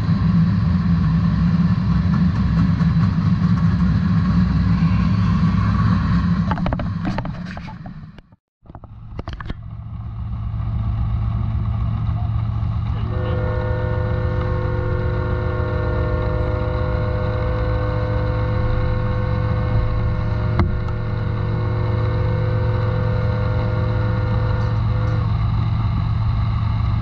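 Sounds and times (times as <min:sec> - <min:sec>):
steady multi-note whine: 0:00.0 - 0:27.0
vehicle engine idling: 0:08.8 - 0:27.0.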